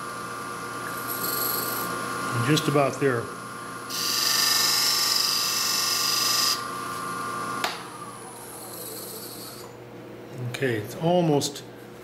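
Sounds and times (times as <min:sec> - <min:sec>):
lathe motor whine: 0:00.0 - 0:09.8
lathe tool hissing cut: 0:03.9 - 0:09.7.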